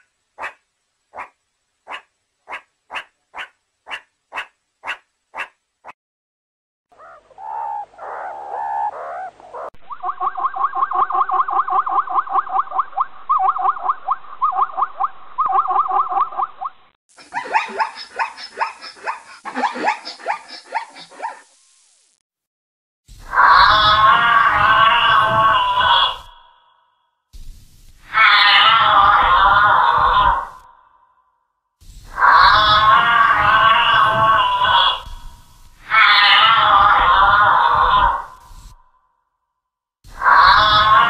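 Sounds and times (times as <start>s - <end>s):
zebras yelping barks: 0.0s - 0.6s, 1.2s - 6.0s, 17.3s - 21.4s
meerkat calls: 0.0s - 6.0s, 6.9s - 10.0s, 23.3s - 26.3s, 28.1s - 30.6s, 32.2s - 35.2s, 35.8s - 38.5s, 40.2s - 41.0s
giraffe call: 23.4s - 26.3s, 32.2s - 35.2s.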